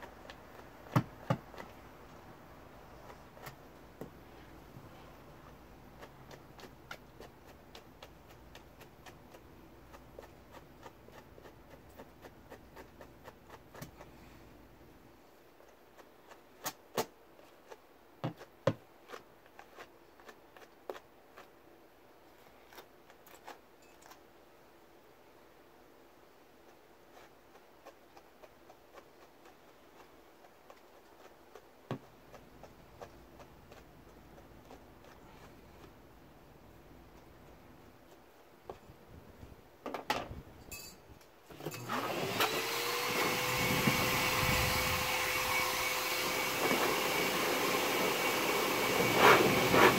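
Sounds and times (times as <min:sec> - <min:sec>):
brush clicking through fur: 0:00.0 - 0:14.4, 0:26.6 - 0:38.8, 0:46.3 - 0:49.9.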